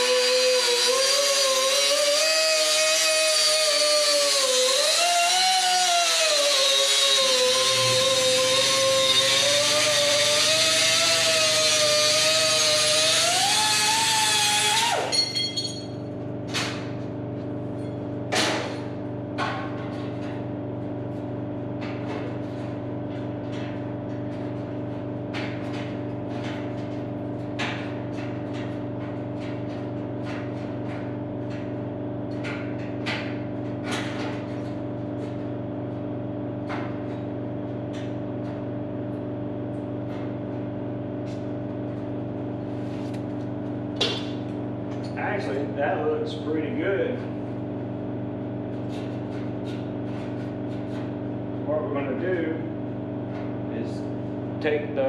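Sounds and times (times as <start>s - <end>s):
cutoff tool cutting sheet metal: 0.0s - 15.1s
steady low hum: 15.1s - 55.0s.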